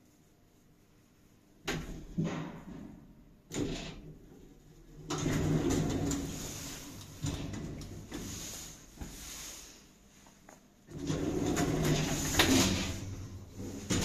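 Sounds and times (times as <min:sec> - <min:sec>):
lift doors sliding open: 0:05.0 - 0:09.2, 0:10.9 - 0:14.0.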